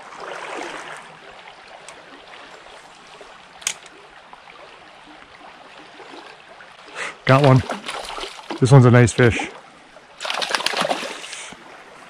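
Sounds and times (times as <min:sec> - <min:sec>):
creek water running over riffles: 0:00.0 - 0:12.0.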